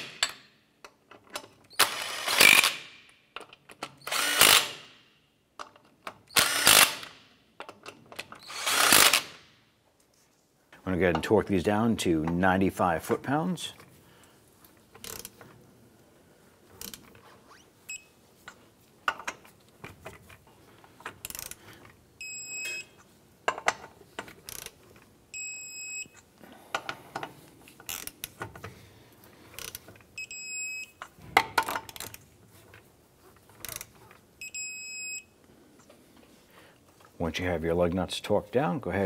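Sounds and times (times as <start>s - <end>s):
torque wrench ratchet clicks: 21.2s - 21.6s, 24.5s - 24.8s
short electronic beeps: 34.4s - 35.3s.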